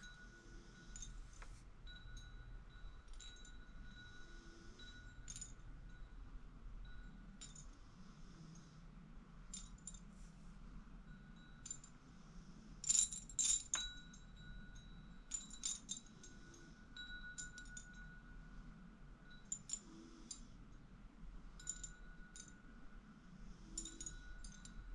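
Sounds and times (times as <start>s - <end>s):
wind chimes tinkling: 0.0s - 7.8s, 11.1s - 18.5s, 21.5s - 22.7s, 23.6s - 24.9s.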